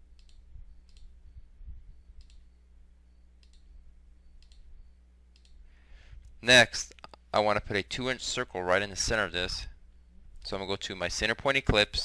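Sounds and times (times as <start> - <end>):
low electrical hum: 0.0 - 12.0
computer mouse clicks: 0.2 - 1.1, 2.2 - 2.4, 3.4 - 3.7, 4.4 - 4.7, 5.3 - 5.6.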